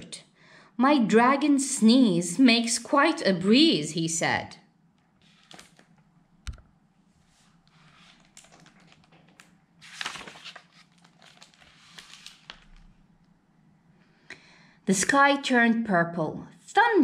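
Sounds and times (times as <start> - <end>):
page turning swish: 5.2 - 5.9, 7.2 - 12.9
book rustling: 5.2 - 13.0.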